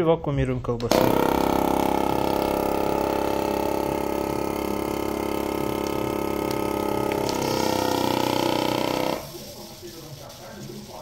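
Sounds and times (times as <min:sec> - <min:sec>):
vacuum sealer pump running: 0:00.9 - 0:09.4.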